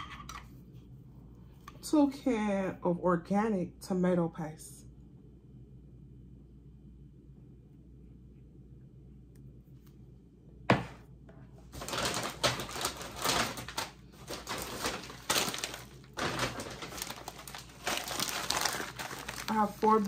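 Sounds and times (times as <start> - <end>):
plastic bags crinkling: 11.7 - 20.0.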